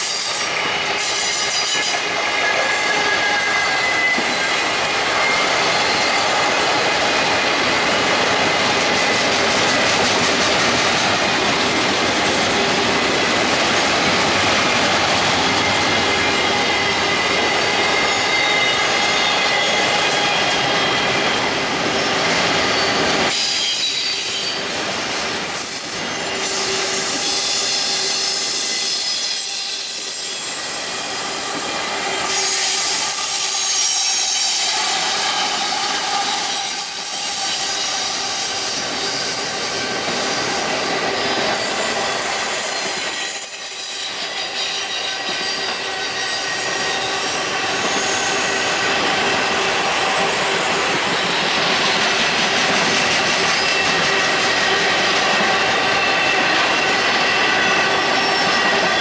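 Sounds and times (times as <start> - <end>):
high-pitched wheel squeal: 0.0 - 6.8, 22.6 - 49.0
diesel locomotive passing: 0.0 - 59.0
train wheels rumbling on rails: 0.0 - 59.0.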